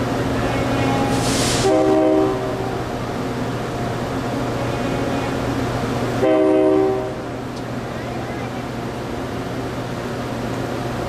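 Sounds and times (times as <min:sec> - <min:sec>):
diesel locomotive humming: 0:00.0 - 0:11.0
train horn chord blast: 0:00.6 - 0:02.8, 0:04.6 - 0:05.5, 0:06.2 - 0:07.3.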